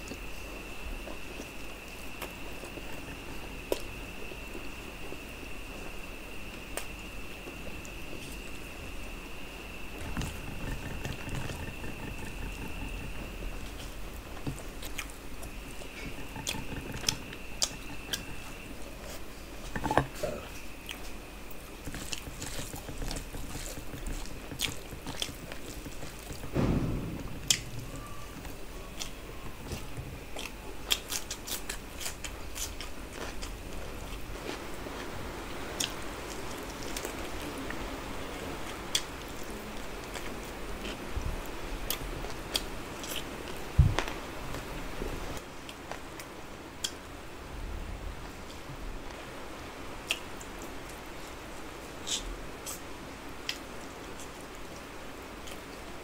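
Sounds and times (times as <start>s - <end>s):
person chewing food: 0.0s - 9.0s, 9.8s - 26.6s, 27.3s - 37.8s, 38.6s - 44.1s.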